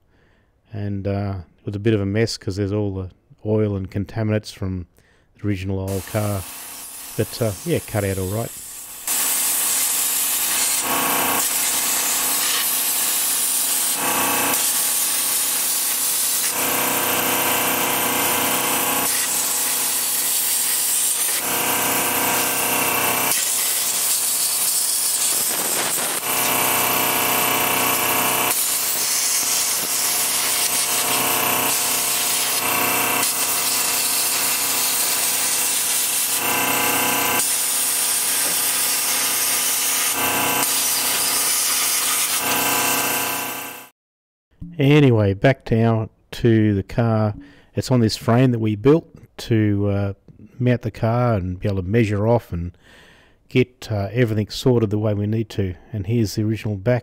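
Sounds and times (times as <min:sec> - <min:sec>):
plasma cutter hissing and buzzing: 0:05.9 - 0:17.4, 0:18.5 - 0:43.6.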